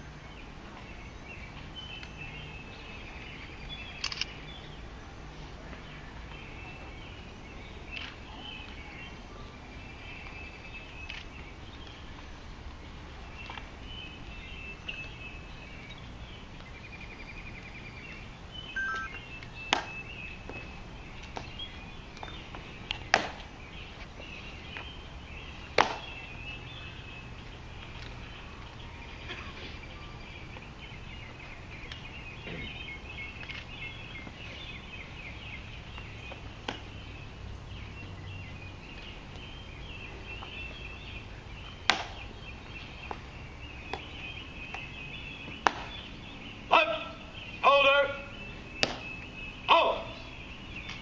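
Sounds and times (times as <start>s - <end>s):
birds chirping: 0.0s - 51.0s
sharp loud clicks: 4.0s - 4.4s.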